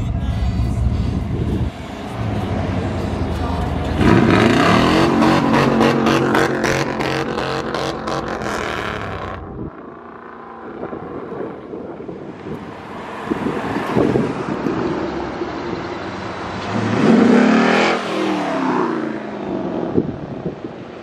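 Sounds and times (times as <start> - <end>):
low engine rumble: 0.0 - 17.4
engine revving up: 2.1 - 9.4, 16.4 - 19.3.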